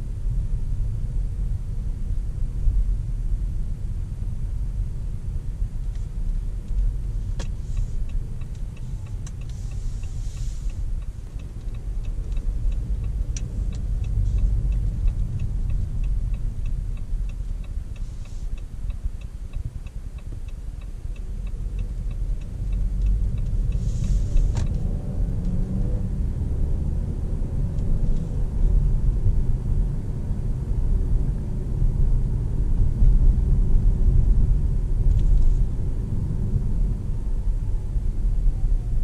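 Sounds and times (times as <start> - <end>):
road and drivetrain rumble: 0.0 - 39.0
turn-signal indicator ticking: 6.7 - 24.8.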